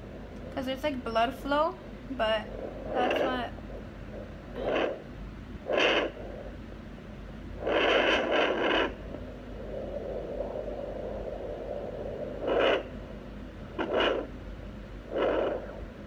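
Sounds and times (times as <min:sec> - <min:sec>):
doppler monitor scraping noise: 0:02.4 - 0:06.6, 0:07.6 - 0:09.1.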